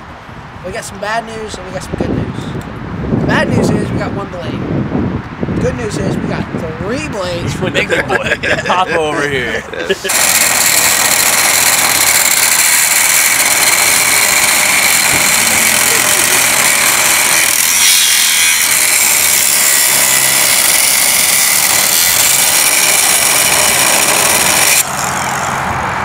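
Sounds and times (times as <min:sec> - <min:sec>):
angle grinder cutting metal: 0:07.9 - 0:25.7.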